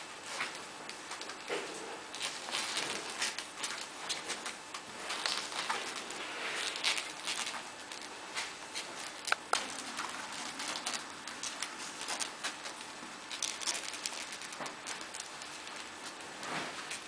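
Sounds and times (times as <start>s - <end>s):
puppies suckling clicks and smacks: 6.8s - 16.2s.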